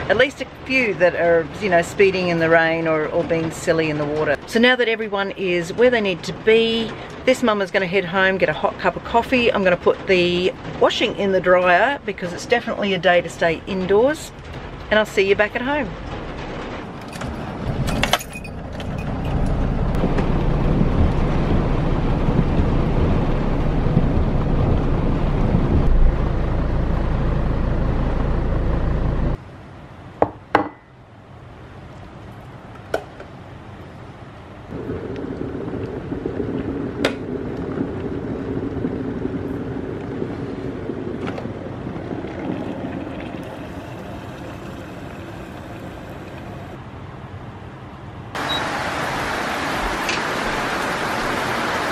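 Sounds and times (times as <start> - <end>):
heavy rain on car: 13.4 - 17.9, 19.3 - 27.9, 34.7 - 46.8, 48.4 - 51.9
car road noise: 13.4 - 29.5, 33.3 - 51.9
electric kettle humming: 42.3 - 46.8.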